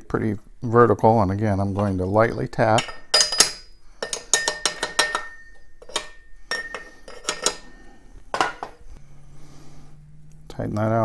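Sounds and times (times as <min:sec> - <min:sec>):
hammer tapping metal: 0:02.7 - 0:07.7.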